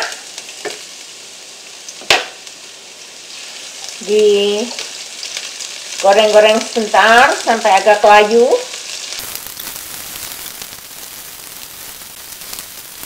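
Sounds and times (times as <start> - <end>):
onion sizzling in hot oil: 0.0 - 13.0.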